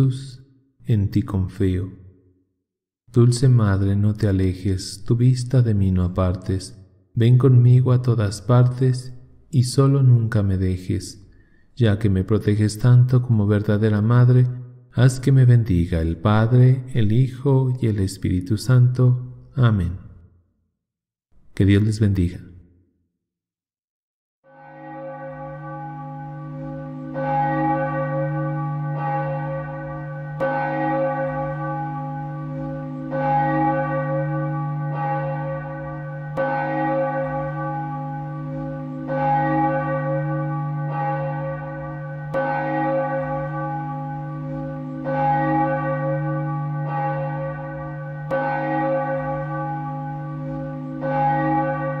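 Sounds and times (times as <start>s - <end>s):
church bell tolling: 0.0s - 2.0s, 11.9s - 19.9s, 24.5s - 52.0s.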